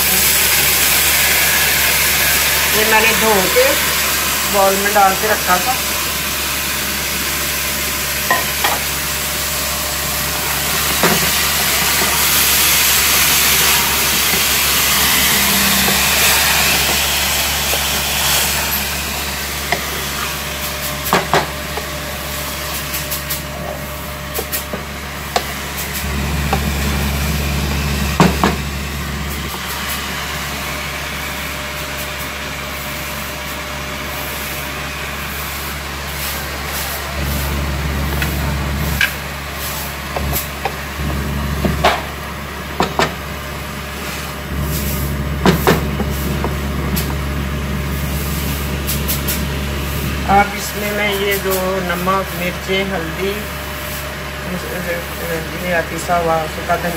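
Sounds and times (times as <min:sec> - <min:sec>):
meat sizzling in hot oil: 0:00.0 - 0:22.7.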